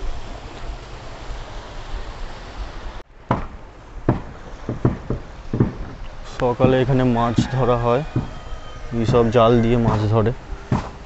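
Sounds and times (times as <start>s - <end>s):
soft thumps: 4.1s - 7.5s.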